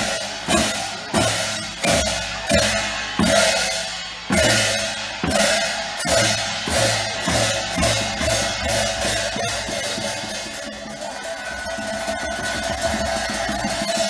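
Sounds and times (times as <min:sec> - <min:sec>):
cymbals ringing: 0:00.0 - 0:14.0
drum strokes: 0:00.0 - 0:14.0.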